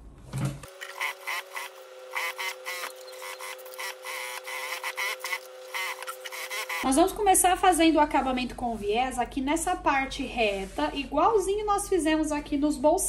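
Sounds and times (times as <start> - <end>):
sewing machine stitching: 0.7 - 6.9.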